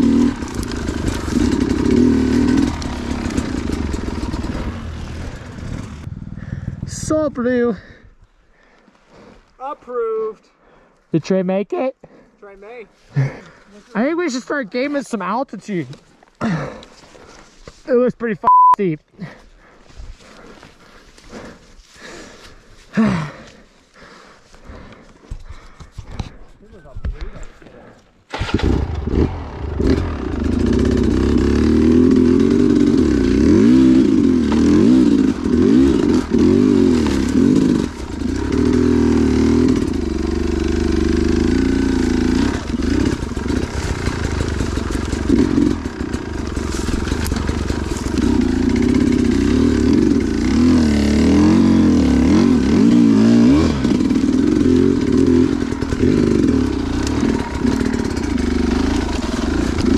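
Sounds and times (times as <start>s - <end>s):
dirt bike engine revving: 0.0s - 6.8s, 28.3s - 59.9s.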